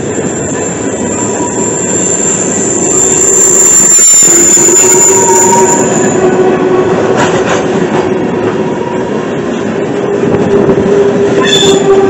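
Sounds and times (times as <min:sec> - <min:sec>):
whining tone from wheels: 0:00.0 - 0:07.0
train wheels rumbling on rail: 0:00.0 - 0:12.0.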